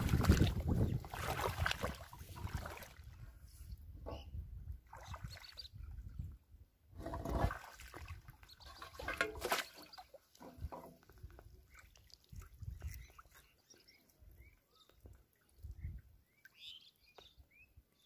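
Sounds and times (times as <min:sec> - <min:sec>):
bare feet wading in water: 0:00.0 - 0:03.2, 0:04.8 - 0:05.9, 0:07.0 - 0:16.7
shallow water splashing and sloshing: 0:00.0 - 0:03.3, 0:04.8 - 0:06.3, 0:07.0 - 0:14.0.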